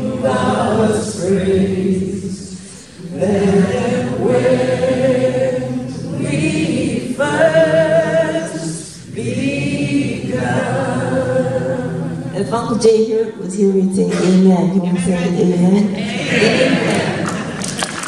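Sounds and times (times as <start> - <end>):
group singing unaccompanied: 0.0 - 12.6, 15.9 - 17.6.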